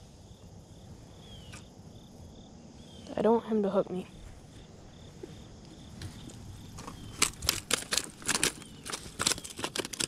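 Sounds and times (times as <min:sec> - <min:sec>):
stones clattering: 0:06.7 - 0:10.0.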